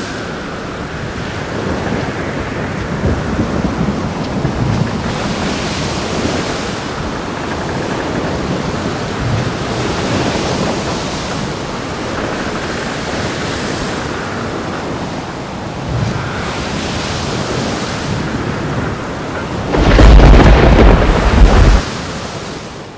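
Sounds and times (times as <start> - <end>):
surf: 0.0 - 22.9
wind: 0.0 - 22.9
low rumble of thunder: 19.6 - 21.8.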